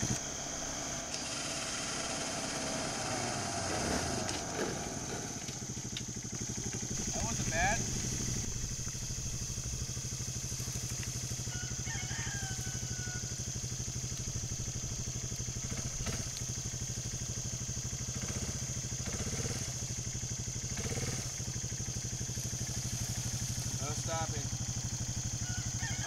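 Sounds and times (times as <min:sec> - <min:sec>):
quad engine running at low revs: 0:00.0 - 0:26.0.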